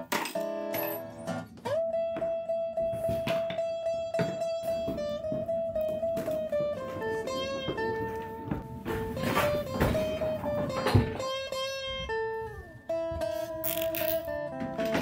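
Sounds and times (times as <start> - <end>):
guitar music: 0.0 - 15.0.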